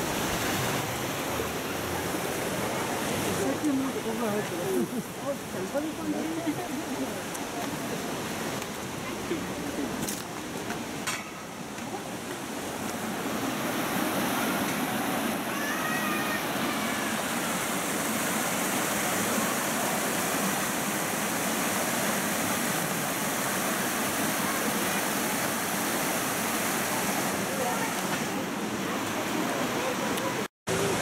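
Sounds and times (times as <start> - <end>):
stream rushing over boulders: 0.0 - 31.0.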